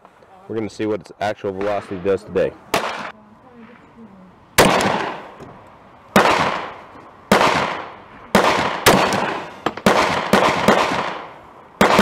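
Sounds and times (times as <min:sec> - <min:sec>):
pistol shots with echo: 0:02.7 - 0:03.1, 0:04.6 - 0:05.3, 0:06.1 - 0:12.0.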